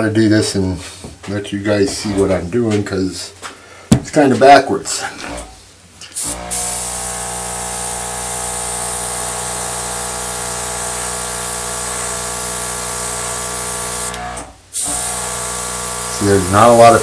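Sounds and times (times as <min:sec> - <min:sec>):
air gun blowing: 0:06.1 - 0:16.2.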